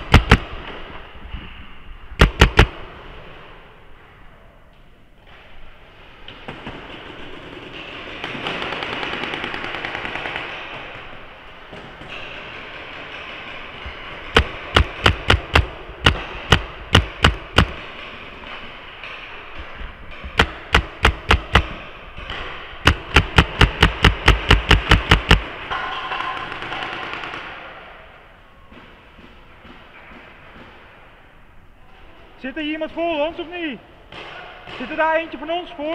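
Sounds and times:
paintball marker firing: 0.0 - 0.9, 2.2 - 2.9, 14.2 - 17.9, 20.2 - 27.7.

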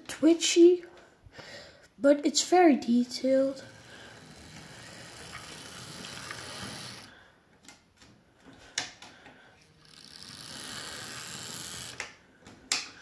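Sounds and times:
model train motor whirring: 3.5 - 7.1, 9.8 - 12.0.

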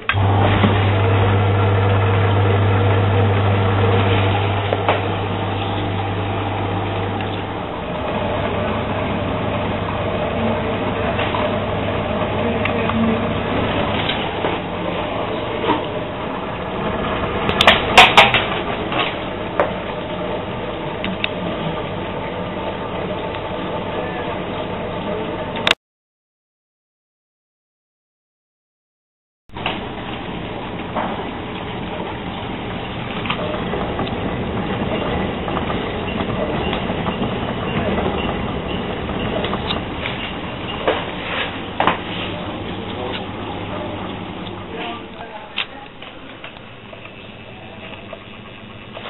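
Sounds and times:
dishwasher pump humming: 0.0 - 25.8, 29.5 - 49.0
water spraying inside dishwasher: 29.6 - 49.0.

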